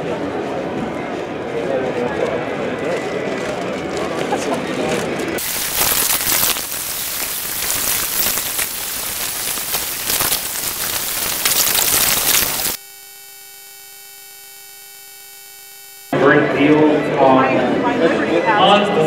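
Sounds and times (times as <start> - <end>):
plastic bag rustling: 5.4 - 12.8
electrical buzz: 5.4 - 16.2.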